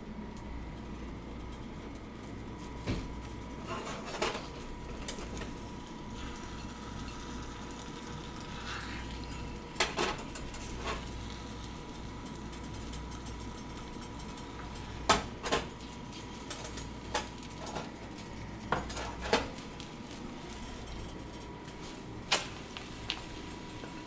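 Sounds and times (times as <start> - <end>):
spatula scraping a skillet: 3.6 - 4.3.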